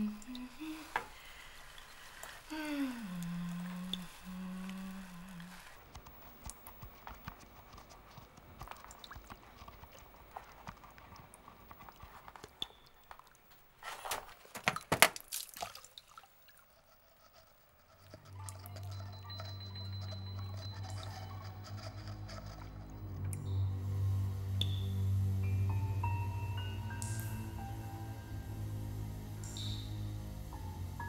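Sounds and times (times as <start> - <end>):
faint ticks and rustles: 0.0 - 14.4
low hummed note: 2.5 - 5.6, 18.1 - 31.0
low steady drone: 18.1 - 31.0.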